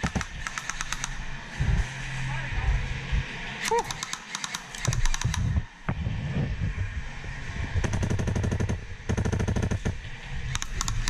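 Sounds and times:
airsoft guns full-auto bursts: 0.0s - 1.2s, 3.6s - 5.5s, 7.8s - 10.0s, 10.6s - 11.0s.

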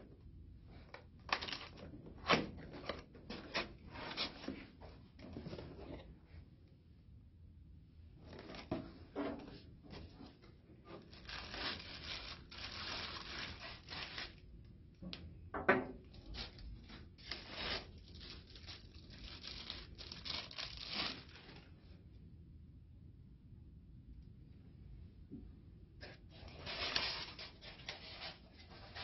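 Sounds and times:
cardboard rustling and tearing: 10.9s - 14.4s, 16.2s - 21.6s, 26.3s - 29.0s.

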